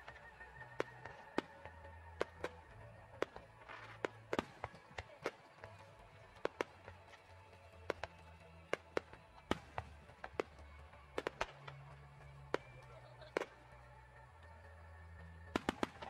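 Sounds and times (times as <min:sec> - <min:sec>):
background music: 0:00.0 - 0:16.0
firework shells bursting: 0:11.2 - 0:11.9.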